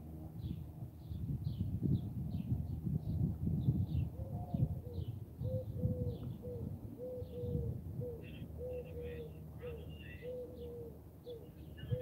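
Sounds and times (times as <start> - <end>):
dove cooing: 4.1 - 12.0.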